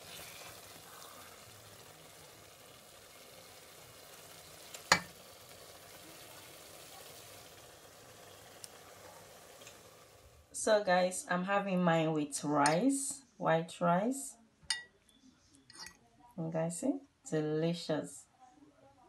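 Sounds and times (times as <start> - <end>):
faint sizzle: 0.0 - 13.3.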